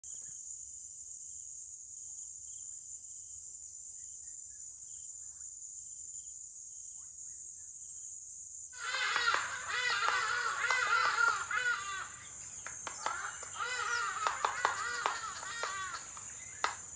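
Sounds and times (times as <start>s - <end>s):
high-pitched insect chorus: 0.1s - 16.9s
harsh bird calls: 8.8s - 16.9s.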